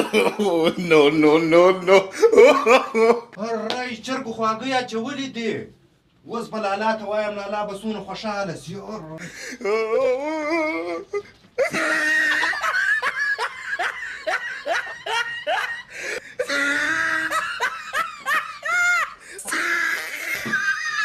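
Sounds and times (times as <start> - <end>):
loud laughter: 0.0 - 0.9, 1.8 - 3.3, 11.6 - 21.0.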